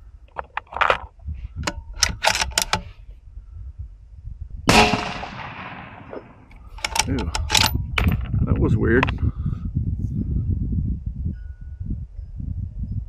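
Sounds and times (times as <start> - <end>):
rifle handling clicks: 1.6 - 2.9, 6.5 - 8.1
rifle shot: 4.7 - 6.5.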